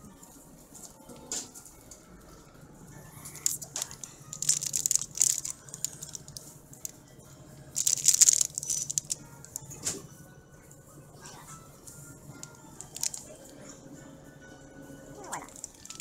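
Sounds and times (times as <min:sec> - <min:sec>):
plastic packaging crinkling: 0:03.3 - 0:06.9, 0:07.8 - 0:09.6, 0:12.4 - 0:13.4, 0:15.5 - 0:16.0.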